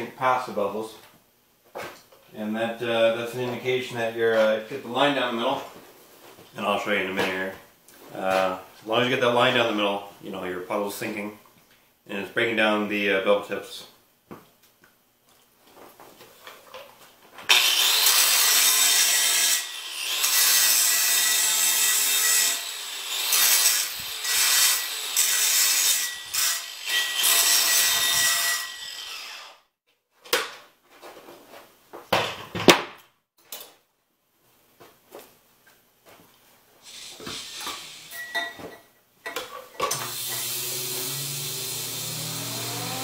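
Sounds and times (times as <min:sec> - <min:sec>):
power grinder grinding steel: 0:17.5 - 0:29.6, 0:40.0 - 0:43.0.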